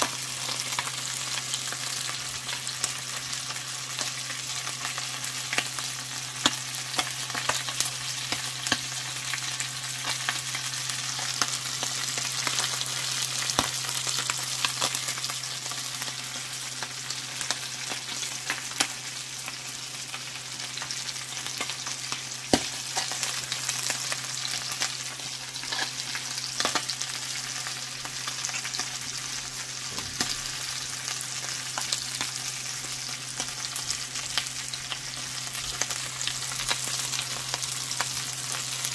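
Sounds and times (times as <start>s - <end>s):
fish frying in sizzling oil: 0.0s - 38.9s.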